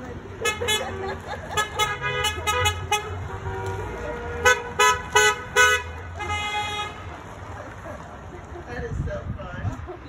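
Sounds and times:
passing car running: 0.0 - 9.1
car horns honking: 0.3 - 7.3.

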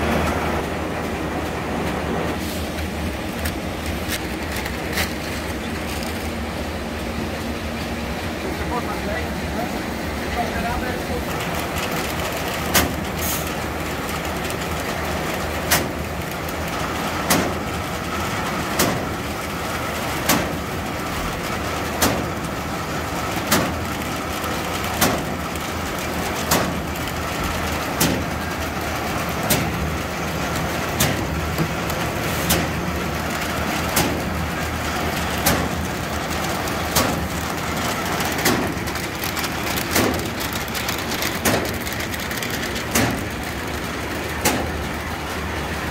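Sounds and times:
machine humming: 0.0 - 45.9
machine clacking: 10.4 - 45.9.

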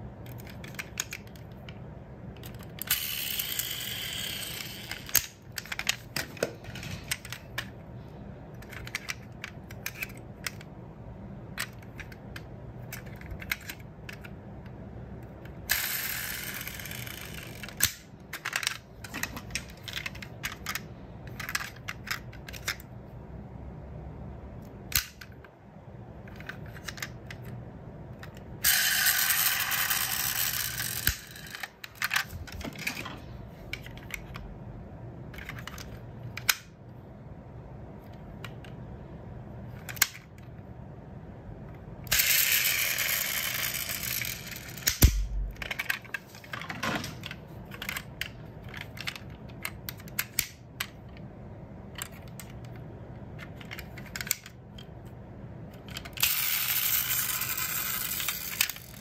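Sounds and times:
toy cars clicking and knocking: 0.2 - 1.8, 2.4 - 7.8, 8.6 - 10.7, 11.5 - 22.9, 26.2 - 34.4, 39.7 - 40.5, 42.1 - 51.2, 51.9 - 55.1, 55.7 - 59.0.

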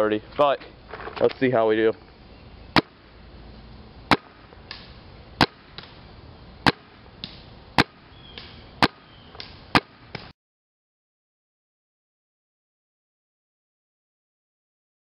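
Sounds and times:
paintball marker shots: 2.8 - 3.0, 4.1 - 6.0, 6.6 - 10.3.

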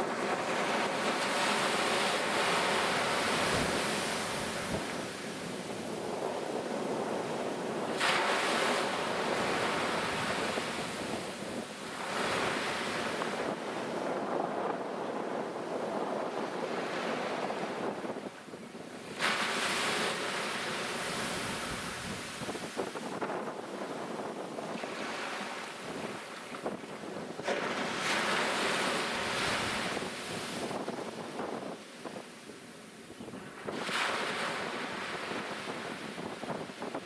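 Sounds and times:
surf breaking over rocks: 0.0 - 13.7
wind buffeting microphone: 0.0 - 37.0.

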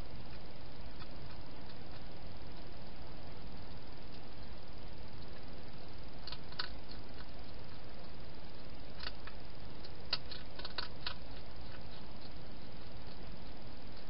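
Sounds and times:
steady hiss: 0.0 - 14.0
hedgehog chewing clicks: 0.3 - 2.9, 6.2 - 14.0.

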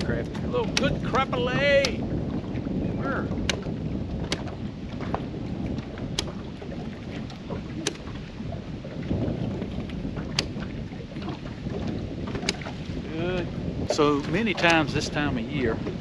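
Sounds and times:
water lapping at hull: 0.0 - 16.0
wind buffeting microphone: 0.0 - 16.0.

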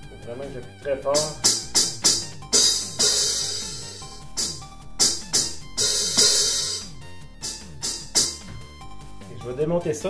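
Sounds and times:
electronic hi-hat hits: 1.1 - 9.2.

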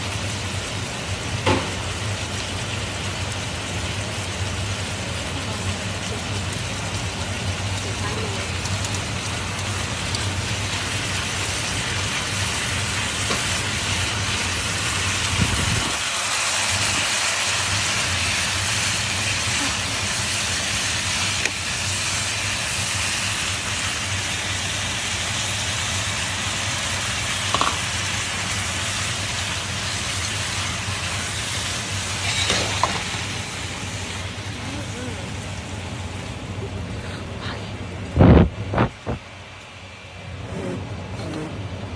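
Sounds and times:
meat sizzling in a wok: 0.0 - 37.1
chopsticks clicking on pan: 27.5 - 27.8.

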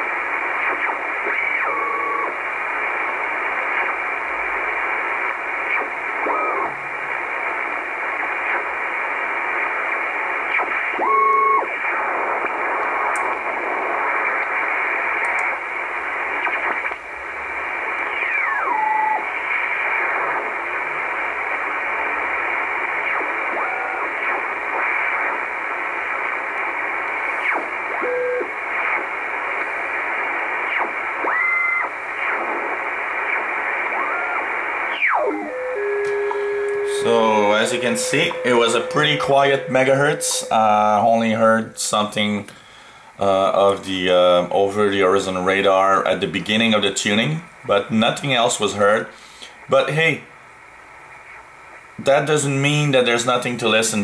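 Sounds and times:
shortwave radio static: 0.0 - 54.0
radio tuning whistles: 0.4 - 4.1, 4.8 - 17.0, 17.8 - 20.7, 21.4 - 41.7.

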